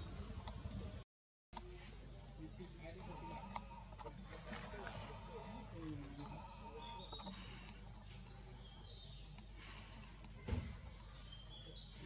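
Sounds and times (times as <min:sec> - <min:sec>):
birds chirping and whistling: 0:03.0 - 0:12.0
sharp thump: 0:10.4 - 0:10.8.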